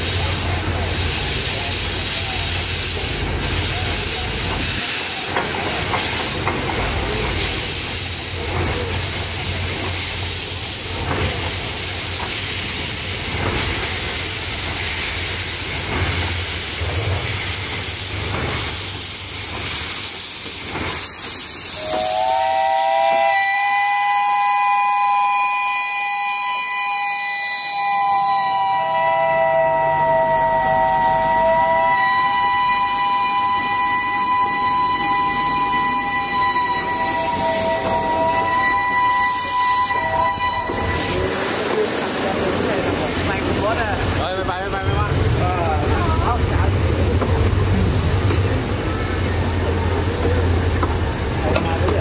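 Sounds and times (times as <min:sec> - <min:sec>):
steam hissing: 0:00.0 - 0:52.0
steam whistle chord: 0:21.8 - 0:41.2.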